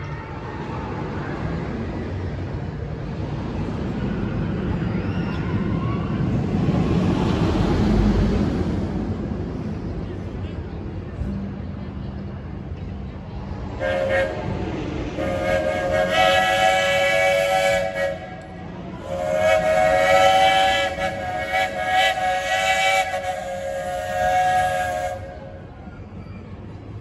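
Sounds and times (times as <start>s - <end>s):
steam locomotive chime whistle: 13.8s - 26.4s.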